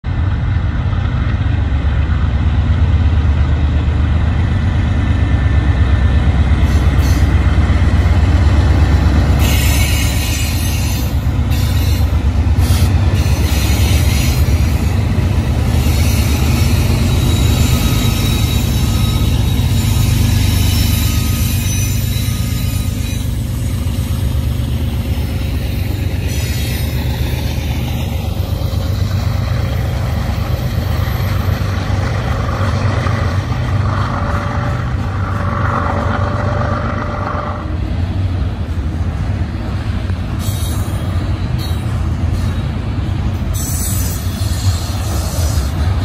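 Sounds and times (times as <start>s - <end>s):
diesel locomotive engines droning: 0.0s - 46.0s
steel wheels rushing on rail: 0.0s - 46.0s
thin wheel squeals: 9.4s - 14.8s, 15.7s - 24.2s.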